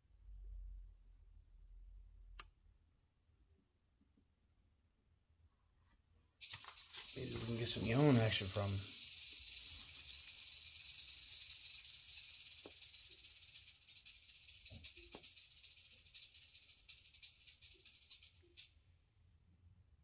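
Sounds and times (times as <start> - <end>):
rattlesnake rattling: 6.4 - 18.8.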